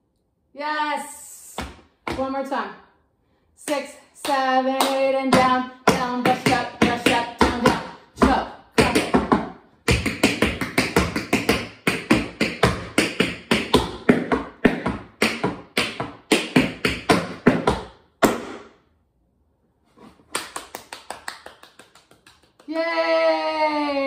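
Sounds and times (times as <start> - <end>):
tap shoes tapping on floor: 5.3 - 18.6.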